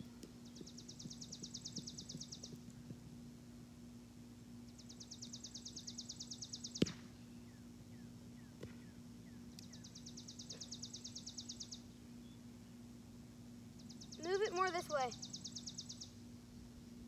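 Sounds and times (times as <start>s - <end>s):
small bird trilling: 13.8s - 16.1s.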